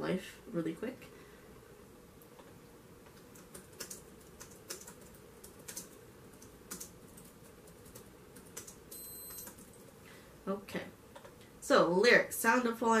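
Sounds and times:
faint laptop keyboard typing: 0:02.2 - 0:10.0, 0:11.1 - 0:11.5.

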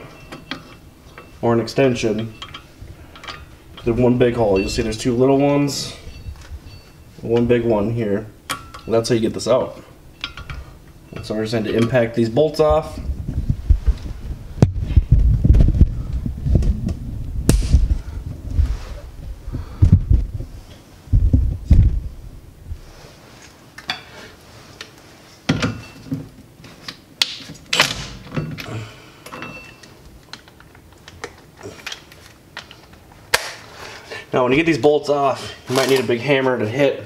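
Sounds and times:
metallic clinks: 0:08.5 - 0:09.2
low thuds and bumps: 0:12.9 - 0:22.8.

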